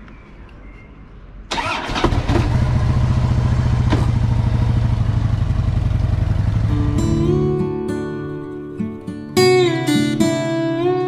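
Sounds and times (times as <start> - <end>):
motorcycle engine cranking: 1.5 - 4.9
motorcycle engine idling: 1.6 - 7.4.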